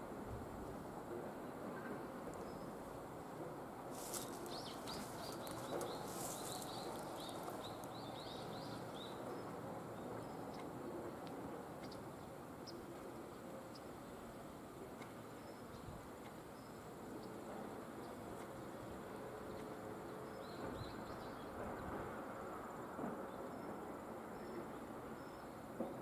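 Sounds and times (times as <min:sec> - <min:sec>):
outdoor background noise: 0:00.0 - 0:26.0
bird chirping: 0:04.4 - 0:10.7.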